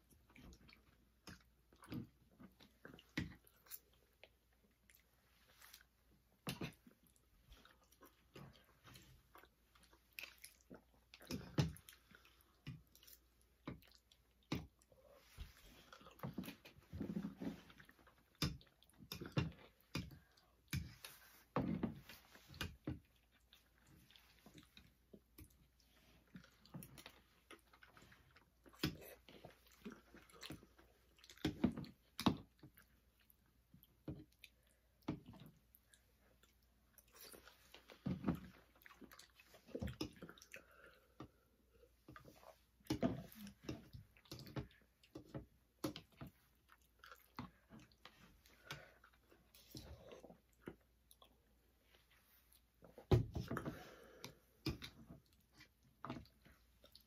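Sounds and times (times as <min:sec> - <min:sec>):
person chewing: 0:06.6 - 0:16.6, 0:22.4 - 0:51.6.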